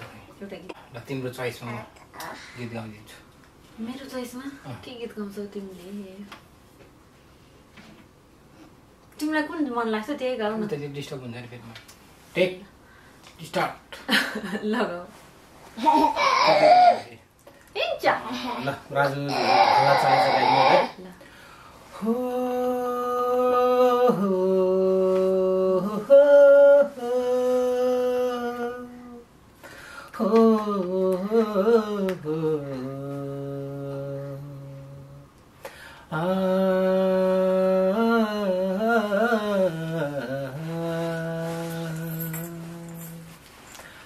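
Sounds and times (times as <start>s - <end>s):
person humming a slow tune: 21.9s - 29.3s, 30.2s - 35.3s, 36.1s - 43.4s.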